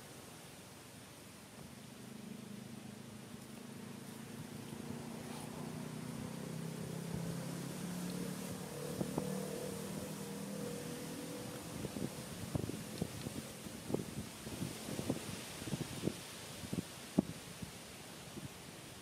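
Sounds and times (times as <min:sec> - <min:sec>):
steady engine-like hum: 0:00.7 - 0:15.2.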